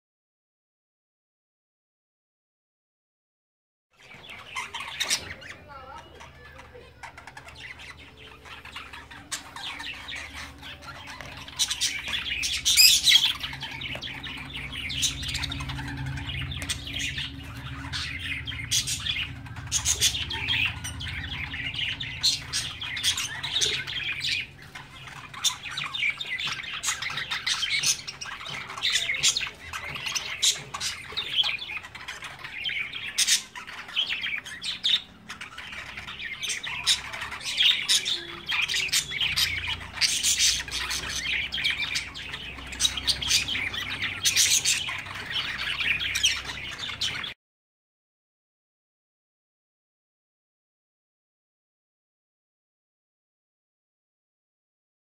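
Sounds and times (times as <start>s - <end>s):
parrots chirping and squawking: 4.0s - 47.4s.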